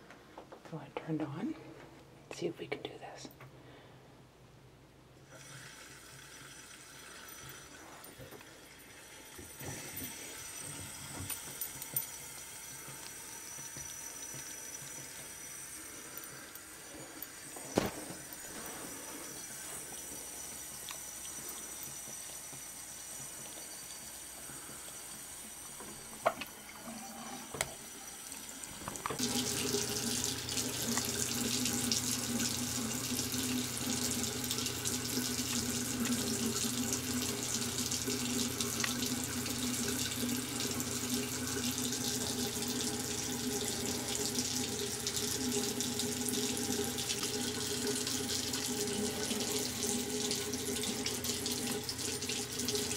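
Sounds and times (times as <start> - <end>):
faucet water splashing into basin: 26.1 - 52.9.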